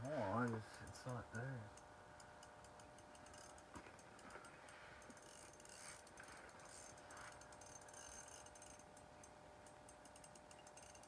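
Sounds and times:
fishing reel ratcheting clicks: 0:02.2 - 0:11.0.

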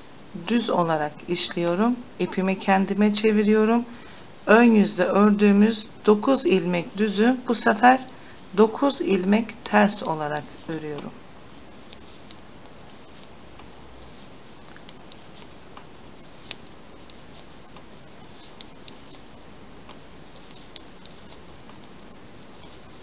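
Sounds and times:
steady low hiss: 0:00.0 - 0:23.0
knitting needles clicking: 0:09.6 - 0:11.1, 0:11.9 - 0:23.0.

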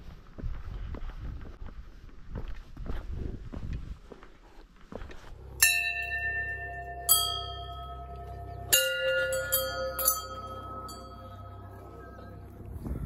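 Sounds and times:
brass bells ringing: 0:05.6 - 0:12.7.

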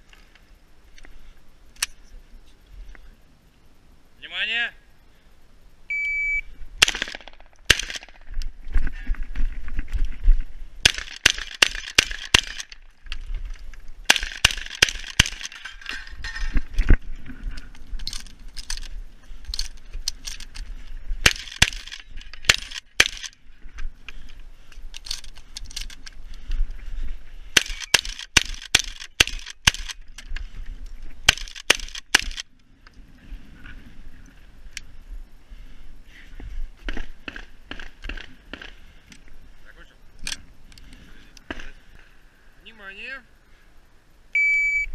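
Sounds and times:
shotgun shots: 0:06.8 - 0:08.3, 0:10.8 - 0:12.7, 0:14.1 - 0:15.6, 0:21.2 - 0:23.3.

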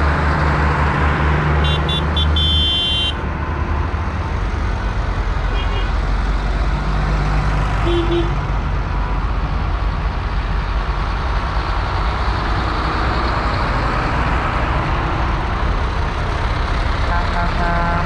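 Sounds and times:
tractor engines rumbling: 0:00.0 - 0:18.0.

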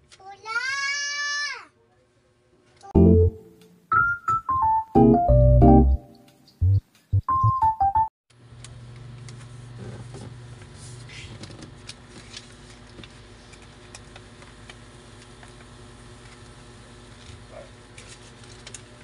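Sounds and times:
piano background music: 0:03.0 - 0:08.1.

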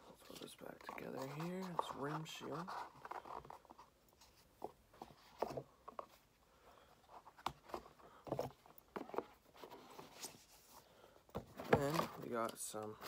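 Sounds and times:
box taps and rustles: 0:11.3 - 0:12.2.

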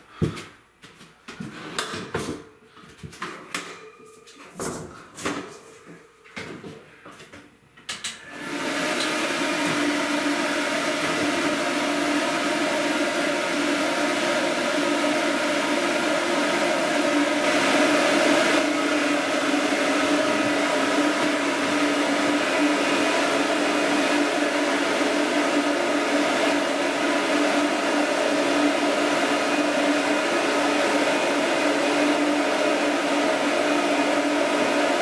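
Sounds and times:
blower dryer motor hum: 0:07.9 - 0:35.0.

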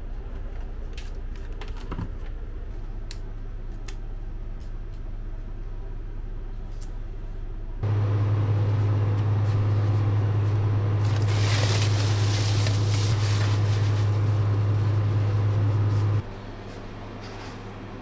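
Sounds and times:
truck engine idling: 0:07.8 - 0:16.3
fabric cover rustling: 0:08.8 - 0:16.2.

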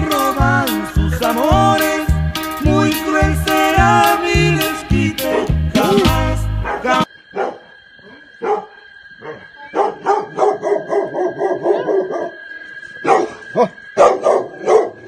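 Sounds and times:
dogs barking: 0:06.6 - 0:15.0.

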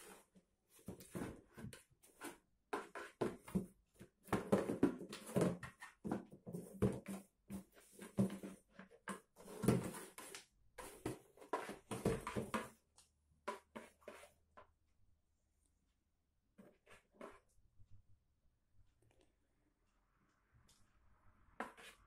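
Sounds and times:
cardboard box scraping on floor: 0:09.4 - 0:12.7.

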